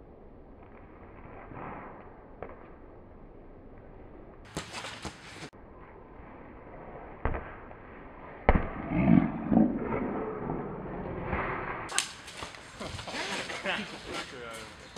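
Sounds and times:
foot kicking football: 7.2s - 7.6s.

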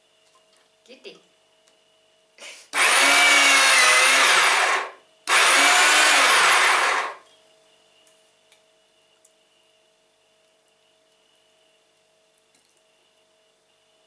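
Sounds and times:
meat grinder motor whining: 2.8s - 7.2s.

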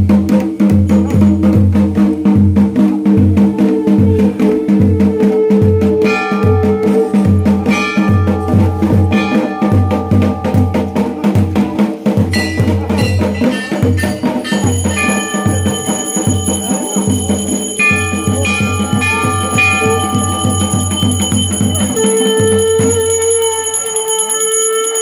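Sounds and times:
drum beat: 0.0s - 25.0s
temple bells ringing: 6.0s - 25.0s.

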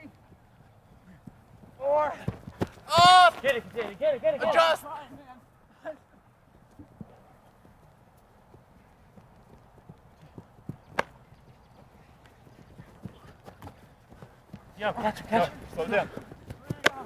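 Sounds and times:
footsteps thudding: 2.2s - 3.8s
sharp slap: 10.9s - 11.2s.

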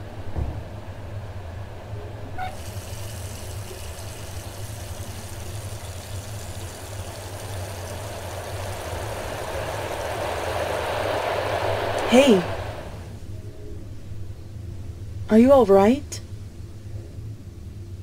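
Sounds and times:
low steady hum: 0.0s - 18.0s
water running from sink tap: 2.4s - 11.5s.

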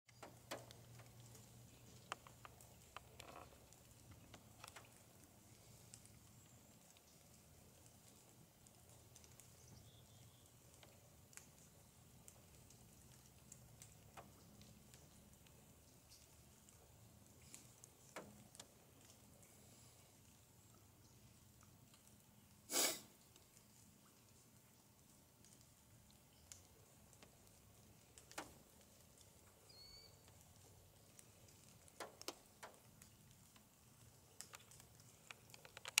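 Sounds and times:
faint clicks: 0.1s - 22.4s, 23.1s - 36.0s.

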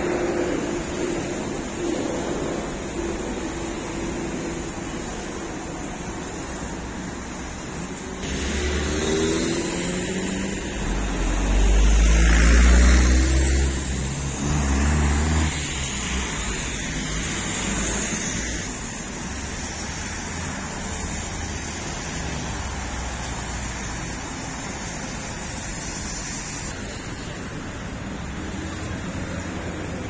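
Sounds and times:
road hum: 0.0s - 30.0s
vehicle engine rumbling past: 8.2s - 18.1s.

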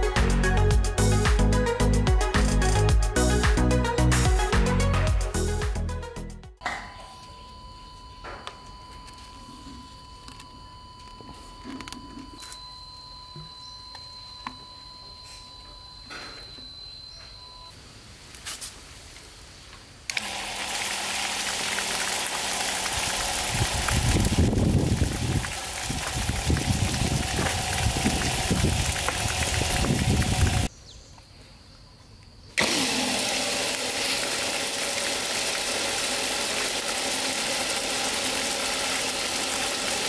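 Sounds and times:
water pump motor hum: 20.1s - 30.7s, 32.6s - 40.0s
water rushing: 20.2s - 30.7s
water splashing down: 20.2s - 30.7s.

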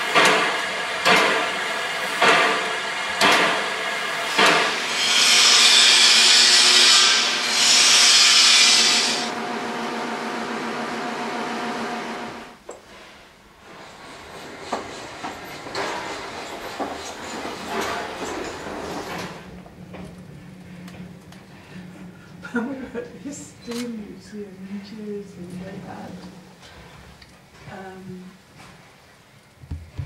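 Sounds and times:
loud steam hiss blasts: 0.0s - 9.4s
steam locomotive beats: 0.0s - 12.5s
steady hum: 9.2s - 12.6s.

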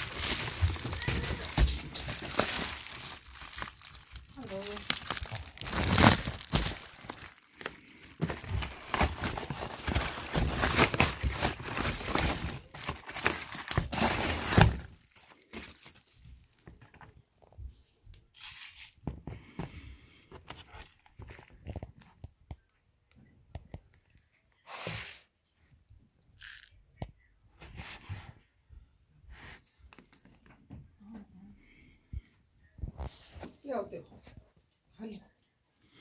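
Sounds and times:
bubble wrap crinkling: 0.0s - 17.5s.

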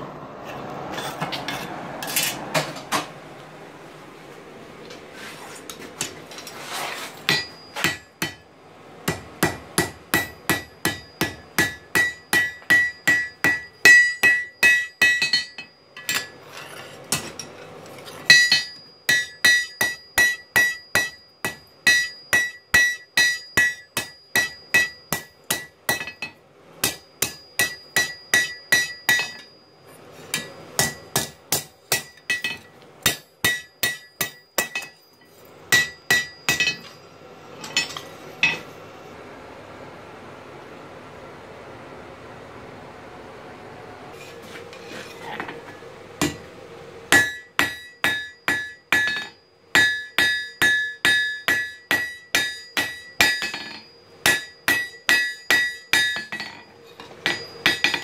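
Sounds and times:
hammer striking metal on anvil: 7.2s - 16.4s, 17.1s - 17.6s, 18.3s - 29.6s, 30.3s - 38.7s, 46.2s - 46.5s, 47.1s - 58.0s.

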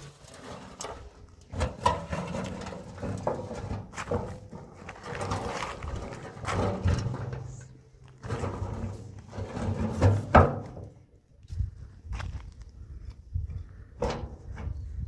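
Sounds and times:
brush scrubbing metal barrel: 0.0s - 7.6s, 8.2s - 10.8s.

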